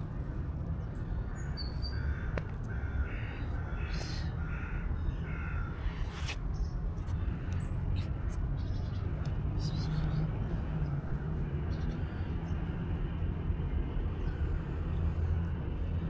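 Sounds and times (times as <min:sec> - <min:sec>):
crow cawing: 0:01.3 - 0:06.0.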